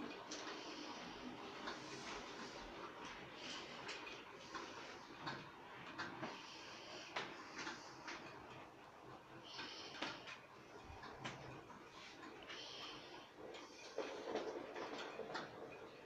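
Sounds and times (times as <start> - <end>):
model train clicking on track: 13.4 - 16.0.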